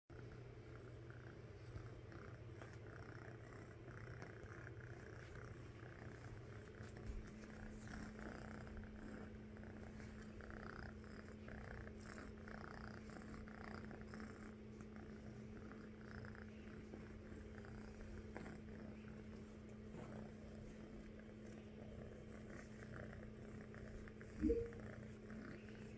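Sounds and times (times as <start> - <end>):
kitten purring: 0.1 - 25.9.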